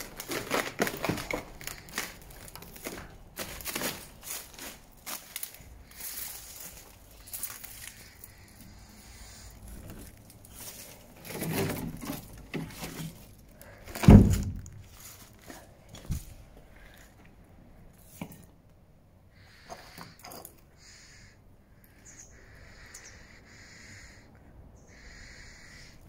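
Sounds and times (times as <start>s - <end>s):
footsteps crunching over rubble: 0.0s - 8.6s, 9.6s - 17.4s
loud low thump: 14.0s - 14.8s.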